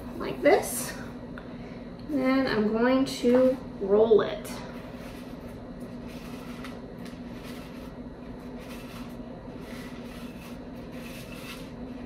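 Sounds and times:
bird seed rustling in a bowl: 4.8 - 12.0.

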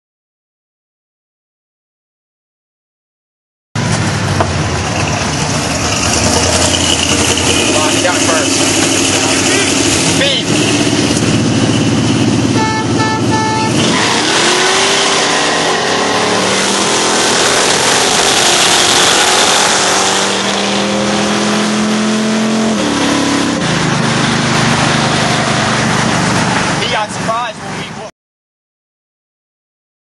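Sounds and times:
car engine revving: 3.8 - 27.9
car horn honks: 12.4 - 14.1.

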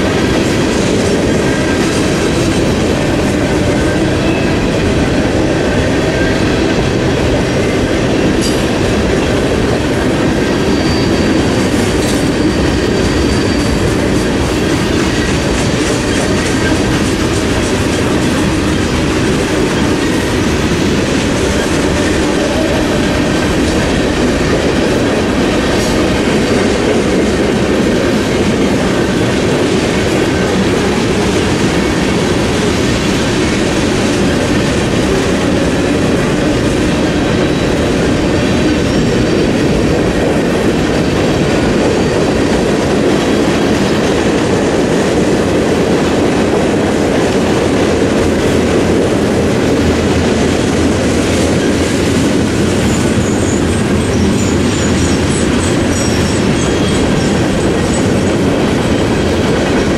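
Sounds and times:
steel wheels rumbling on rails: 0.0 - 59.9.

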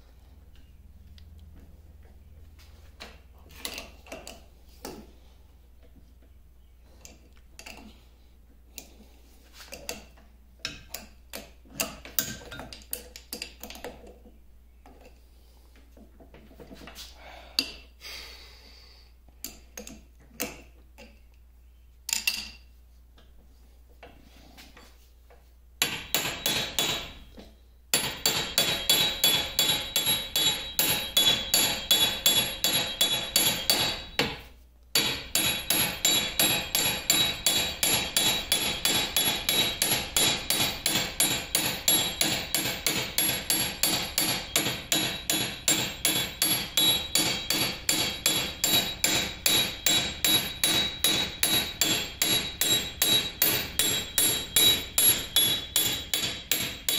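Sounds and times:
hammer striking metal wrench: 25.8 - 27.3, 27.9 - 34.4, 35.0 - 56.9.

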